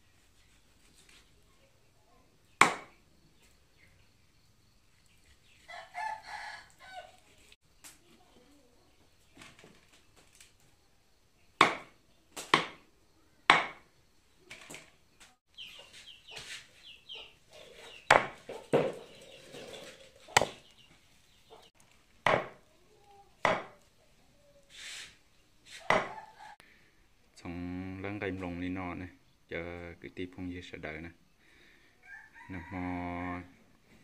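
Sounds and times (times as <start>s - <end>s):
knife chopping meat on wood: 2.6s - 2.9s, 11.6s - 11.9s, 12.5s - 12.8s, 13.5s - 13.8s, 18.1s - 18.4s, 20.4s - 20.6s, 22.2s - 22.6s, 23.4s - 23.8s, 25.9s - 26.2s.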